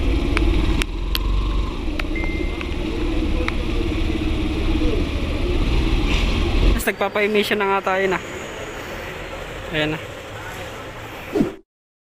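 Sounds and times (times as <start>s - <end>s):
motorcycle engine droning: 0.0s - 6.8s
short high beep: 2.2s - 2.7s.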